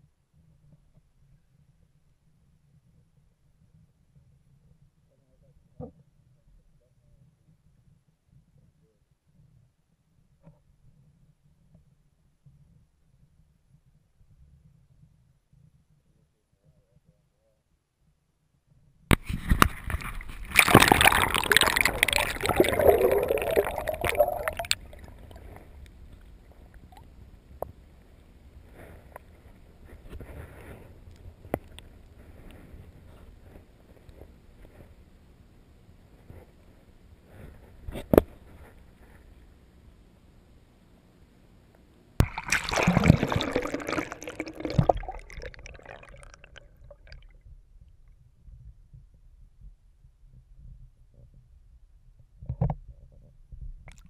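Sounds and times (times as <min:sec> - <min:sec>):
underwater clicks: 0:19.1 - 0:27.8, 0:42.2 - 0:47.2
water sloshing and gurgling: 0:19.2 - 0:27.2, 0:42.2 - 0:47.4
faint underwater hiss: 0:19.2 - 0:33.9, 0:42.2 - 0:47.3.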